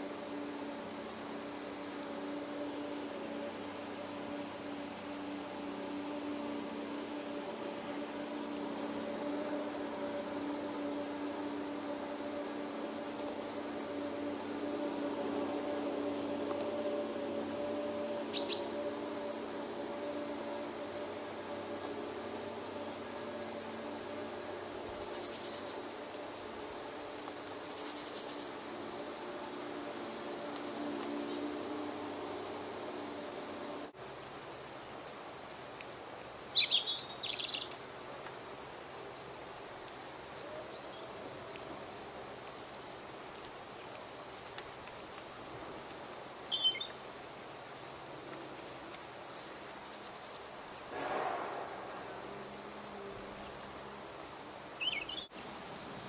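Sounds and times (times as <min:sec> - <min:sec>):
small birds calling: 0:00.0 - 0:55.3
steady hiss: 0:00.0 - 0:56.0
bird trills: 0:16.0 - 0:20.6.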